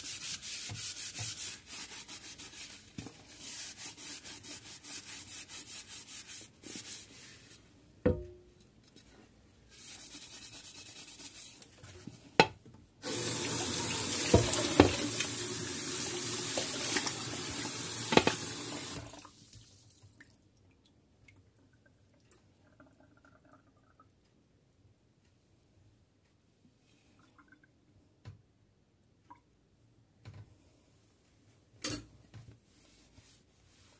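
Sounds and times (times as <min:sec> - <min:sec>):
water running onto lid: 0:13.0 - 0:19.1
faint water drips: 0:19.1 - 0:24.3, 0:29.2 - 0:29.6.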